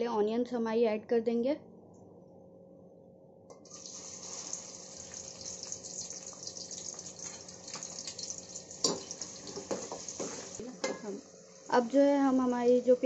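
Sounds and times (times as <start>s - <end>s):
onions sizzling in oil: 3.6s - 13.0s
spatula knocking on pot: 8.8s - 11.1s.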